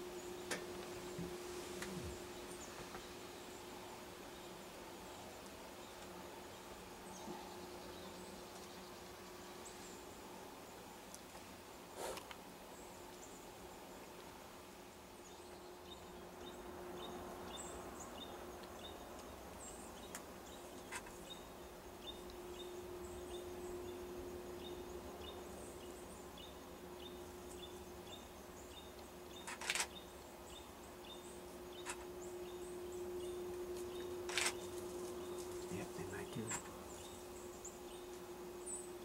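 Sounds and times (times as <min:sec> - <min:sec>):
low hum: 0:15.4 - 0:39.0
sharp clicks: 0:34.3 - 0:34.6.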